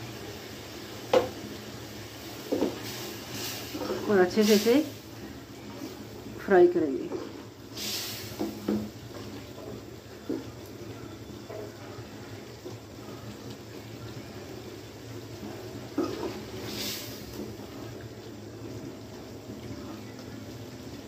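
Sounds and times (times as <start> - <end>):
gravy sizzling and bubbling: 0.0 - 21.0.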